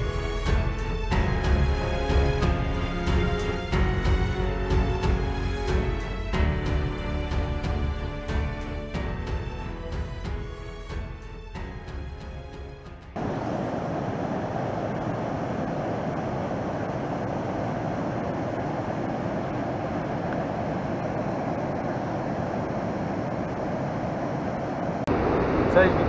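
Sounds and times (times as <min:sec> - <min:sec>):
intro music: 0:00.0 - 0:13.2
rushing outdoor ambience: 0:11.6 - 0:26.0.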